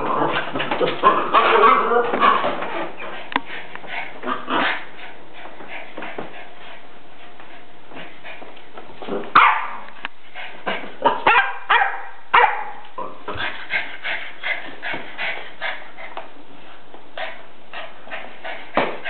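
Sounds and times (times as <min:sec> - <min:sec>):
dog barking and yipping: 0:09.4 - 0:09.9, 0:11.0 - 0:12.8.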